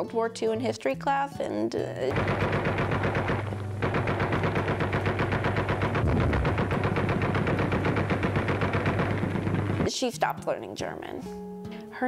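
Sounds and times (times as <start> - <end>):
machine-gun fire: 2.1 - 9.9
steady low drone: 5.4 - 9.9.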